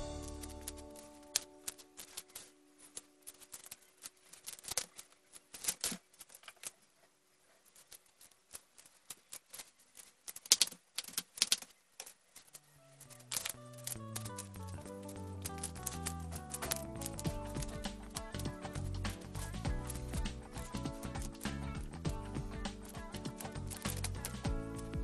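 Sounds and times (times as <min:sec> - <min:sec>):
flip-flop footsteps on tiled floor: 0:16.7 - 0:23.8.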